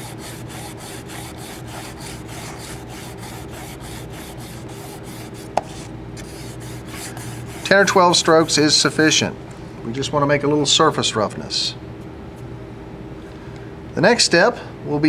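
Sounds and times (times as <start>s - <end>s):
sandpaper rubbing on fiberglass: 0.0s - 8.9s.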